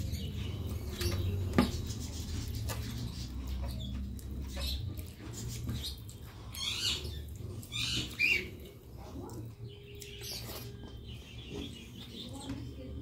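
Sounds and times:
wet chewing and lip-smacking: 0:02.4 - 0:11.0.

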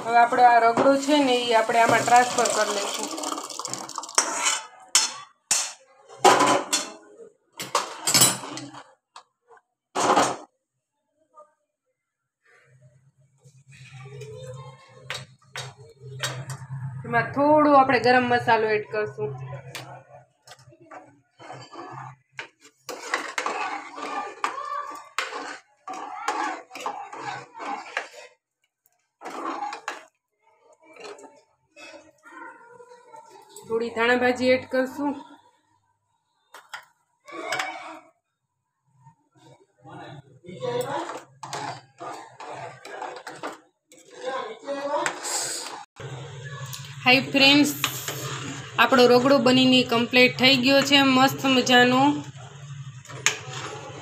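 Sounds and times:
steel spoon scraping cookware: 0:04.0 - 0:05.8, 0:20.5 - 0:28.4, 0:29.2 - 0:30.1, 0:40.6 - 0:45.8, 0:53.0 - 0:54.0.

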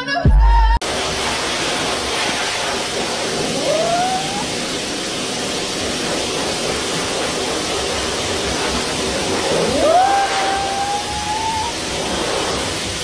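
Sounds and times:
loud steady hiss: 0:00.8 - 0:13.0
puppy howling: 0:03.5 - 0:04.7, 0:09.5 - 0:12.0.

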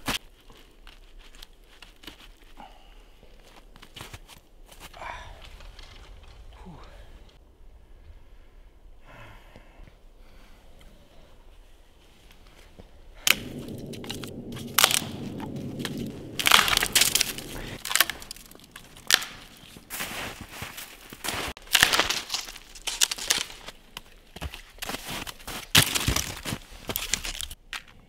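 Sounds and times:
brittle crunching and cracking: 0:04.8 - 0:06.9, 0:13.2 - 0:27.9
low steady hum: 0:05.2 - 0:21.2.

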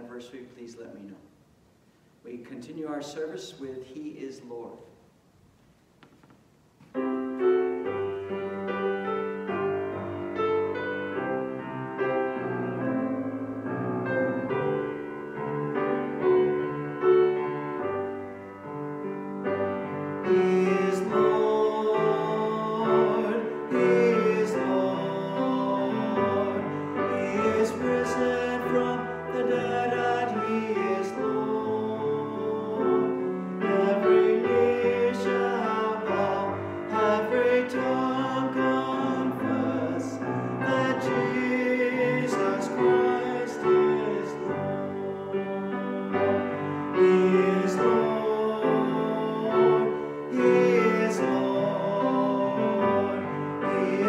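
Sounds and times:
piano accompaniment: 0:06.9 - 0:54.0
people singing a hymn: 0:19.9 - 0:54.0.

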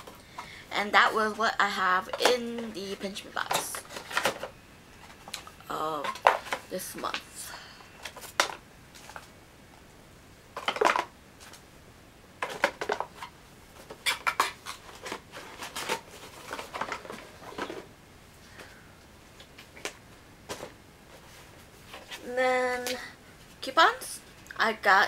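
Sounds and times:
mail and packaging rustling: 0:00.0 - 0:07.2, 0:12.4 - 0:17.9.

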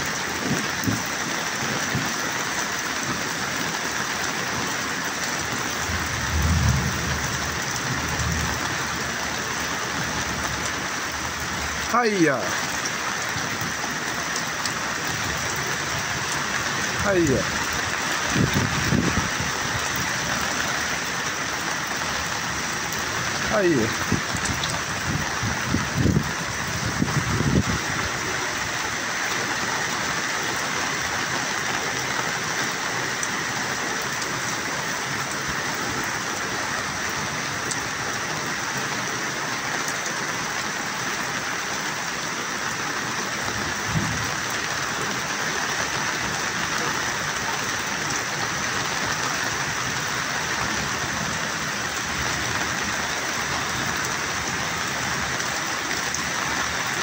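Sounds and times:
heavy rain hissing: 0:00.0 - 0:57.0
low thumps: 0:05.8 - 0:07.6.

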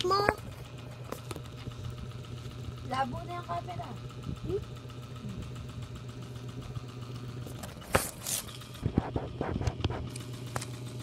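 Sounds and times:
steady low hum: 0:00.0 - 0:11.0
knocks and rubs on microphone: 0:08.8 - 0:10.1.

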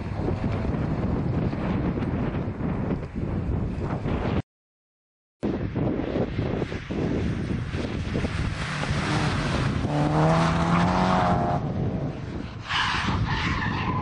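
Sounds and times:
rally car engines at full throttle: 0:05.8 - 0:14.0.

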